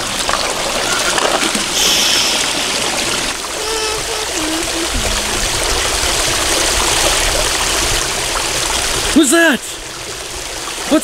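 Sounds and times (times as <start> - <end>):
water rushing over rocks: 0.0 - 11.0
short pitched tones stepping downward: 3.5 - 6.5.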